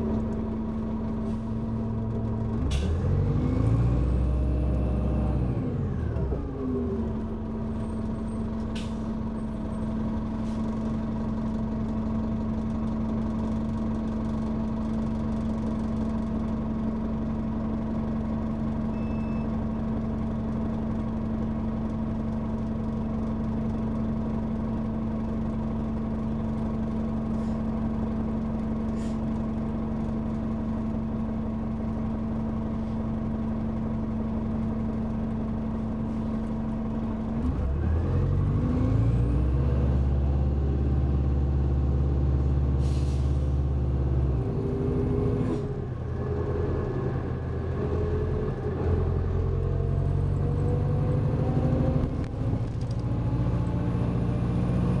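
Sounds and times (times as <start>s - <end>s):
bus diesel engine: 0.0s - 55.0s
brief air hiss: 42.8s - 43.5s.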